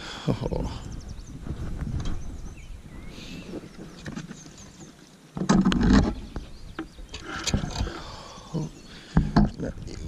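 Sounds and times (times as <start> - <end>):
fishing gear clicks and rustles: 6.8 - 8.2
fishing rod knocking and rattling: 9.2 - 9.6.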